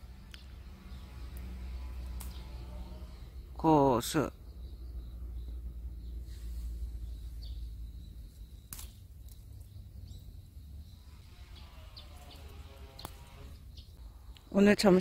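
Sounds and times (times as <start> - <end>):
sharp clicks: 12.3 - 13.4.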